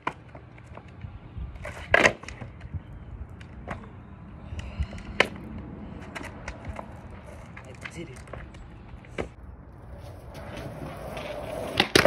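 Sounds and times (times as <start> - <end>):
skateboard clattering on asphalt: 6.0 - 12.0
skateboard pop: 10.3 - 12.0
skateboard landing smack: 11.6 - 12.0.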